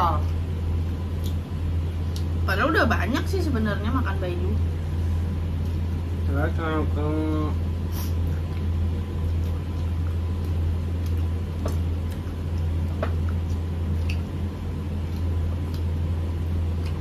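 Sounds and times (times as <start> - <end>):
low hum: 0.0 - 17.0
food being eaten by hand: 8.0 - 17.0.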